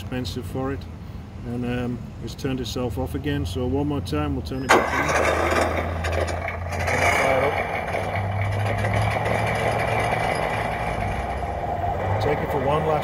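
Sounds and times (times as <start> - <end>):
toy truck simulated engine drone: 4.7 - 13.0.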